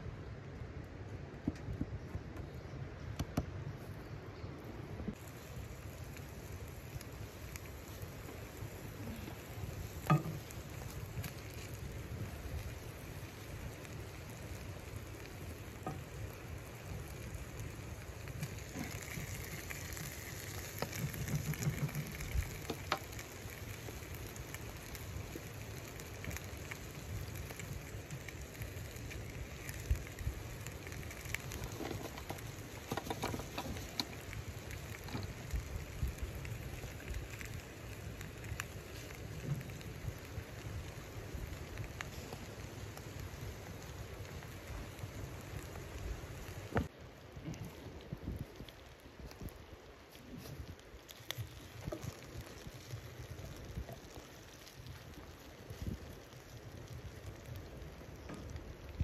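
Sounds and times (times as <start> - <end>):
chicken sizzling in a skillet: 5.1 - 46.9.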